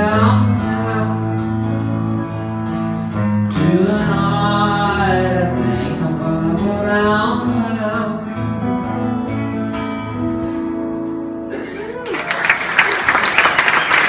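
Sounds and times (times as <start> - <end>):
man singing: 0.0 - 2.4, 3.1 - 9.2
acoustic guitars strumming: 0.0 - 12.0.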